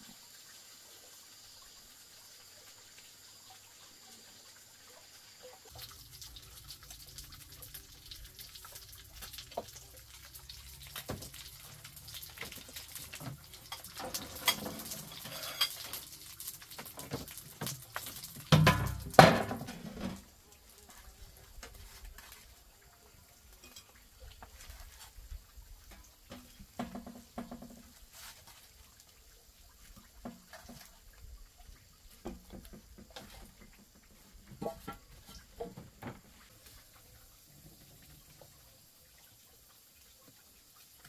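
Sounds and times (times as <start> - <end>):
water sloshing and splashing: 5.4 - 23.0, 23.6 - 38.6
dishes knocking and clinking: 18.5 - 20.2.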